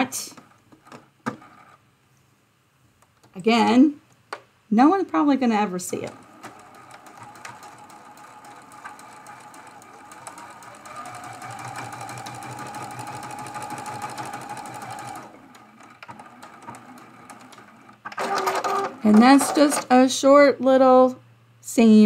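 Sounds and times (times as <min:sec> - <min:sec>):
sewing machine stitching: 0:05.2 - 0:20.0.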